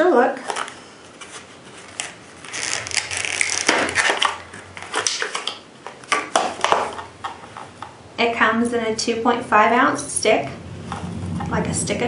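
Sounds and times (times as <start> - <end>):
plastic blister pack crackling: 0.4 - 7.7
plastic snapping: 2.0 - 7.7.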